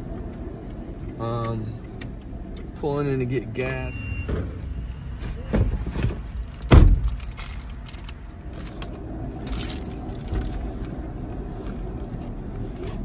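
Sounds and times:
truck engine rumbling: 0.0s - 13.0s
truck door slamming shut: 5.5s - 7.2s.

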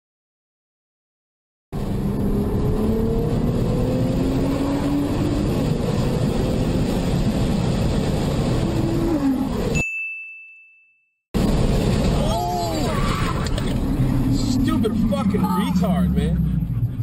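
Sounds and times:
road noise: 1.7s - 9.8s, 11.4s - 17.0s
car engine accelerating: 1.8s - 9.7s, 13.0s - 17.0s.

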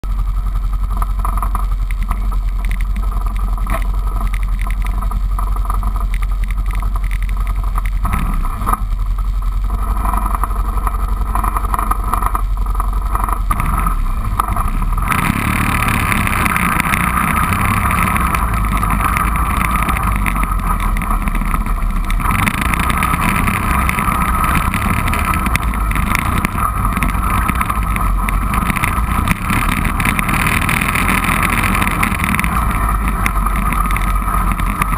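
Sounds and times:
atv engine idling: 0.0s - 34.9s
atv riding on dirt trail: 0.0s - 34.9s
wind noise: 9.7s - 34.9s.

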